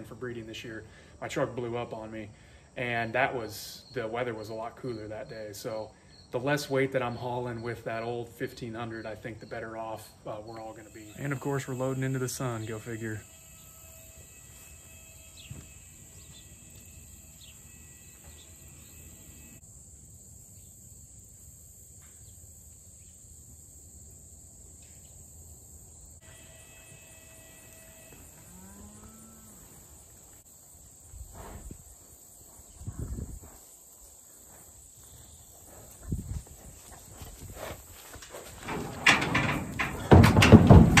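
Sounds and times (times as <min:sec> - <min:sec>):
crickets and insects chirping: 0:00.0 - 0:41.0
dull thumping: 0:38.6 - 0:41.0.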